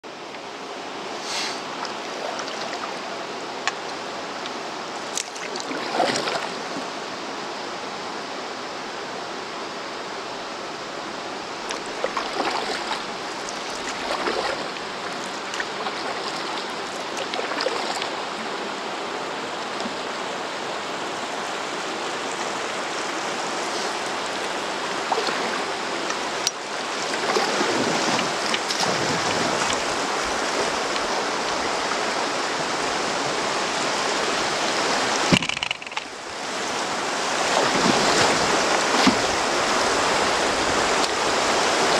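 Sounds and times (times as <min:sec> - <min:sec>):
river rapid rushing: 0:00.1 - 0:41.9
water splashes: 0:01.2 - 0:07.0, 0:11.5 - 0:18.8, 0:22.3 - 0:41.9.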